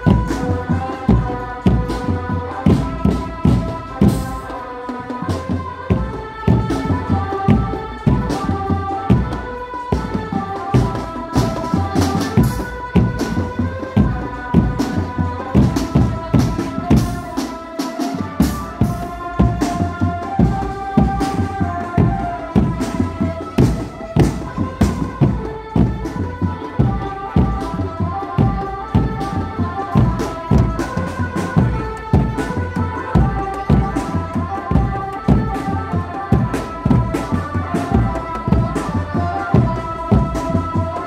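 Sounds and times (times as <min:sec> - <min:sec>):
drum band playing: 0:00.0 - 0:41.0.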